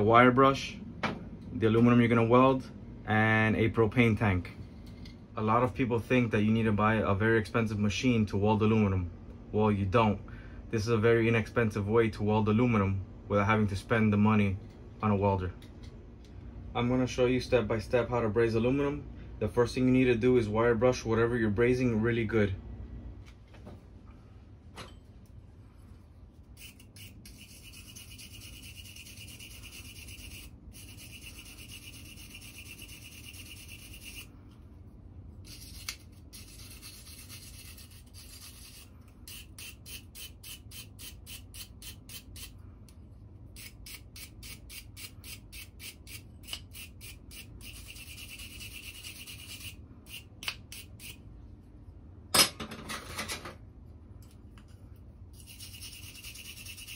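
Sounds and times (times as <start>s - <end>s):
wire brush scrubbing metal: 26.4s - 34.3s, 35.4s - 42.6s, 43.5s - 51.2s, 55.3s - 56.9s.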